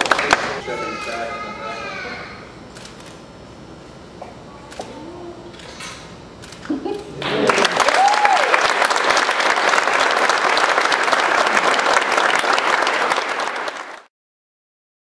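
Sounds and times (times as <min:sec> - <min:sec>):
audience applauding: 0:00.0 - 0:00.7, 0:07.2 - 0:14.1.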